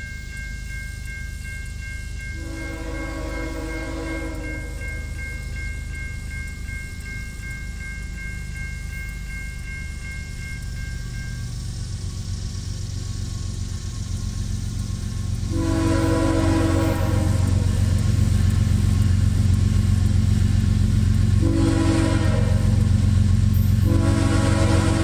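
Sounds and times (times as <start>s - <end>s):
diesel locomotive engine humming: 0.0s - 25.0s
locomotive air horn blasts: 2.4s - 4.8s, 15.5s - 17.8s, 21.4s - 22.9s, 23.8s - 25.0s.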